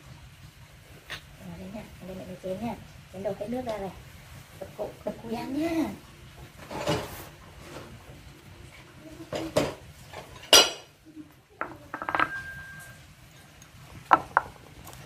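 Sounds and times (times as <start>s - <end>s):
metal utensils and dishes clattering: 6.6s - 8.0s, 9.3s - 10.9s, 11.9s - 13.0s.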